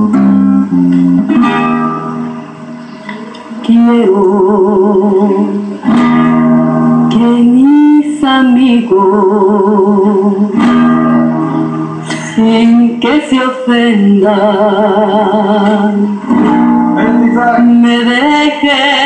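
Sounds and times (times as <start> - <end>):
acoustic guitar: 0.0 - 19.0
woman singing with vibrato: 3.6 - 5.9, 6.9 - 16.4, 17.5 - 19.0.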